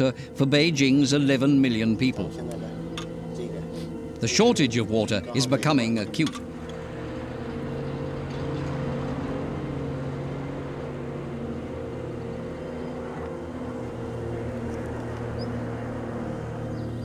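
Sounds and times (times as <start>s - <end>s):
low hum of held tones: 0.0s - 17.0s.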